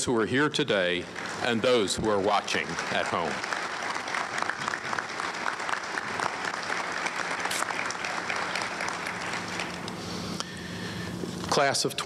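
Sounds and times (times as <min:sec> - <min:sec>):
audience applause: 0:01.1 - 0:09.9.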